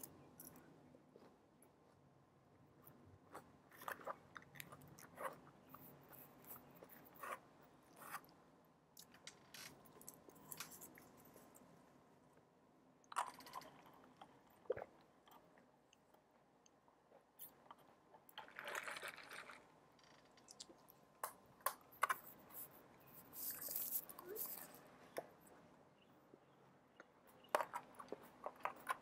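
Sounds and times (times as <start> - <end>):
chewing and crunching salad: 2.8 - 8.4, 13.1 - 19.8, 26.9 - 29.0.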